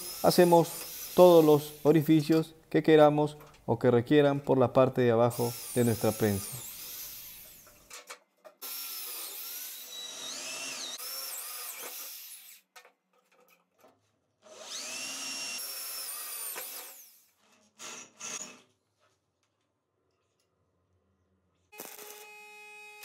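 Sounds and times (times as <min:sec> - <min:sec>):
electric drill boring metal: 0:00.0 - 0:01.9, 0:05.4 - 0:07.8, 0:08.6 - 0:12.6, 0:14.5 - 0:18.6, 0:21.8 - 0:23.0.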